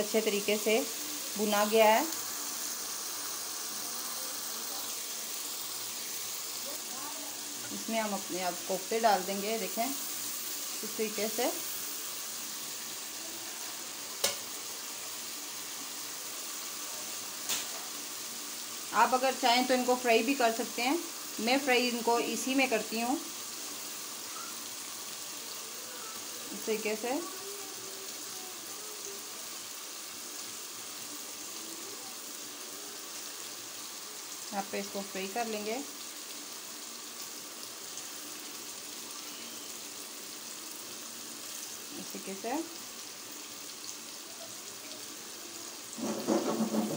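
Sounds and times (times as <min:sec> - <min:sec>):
spices sizzling in oil: 0:00.0 - 0:46.9
spatula stirring: 0:46.0 - 0:46.9.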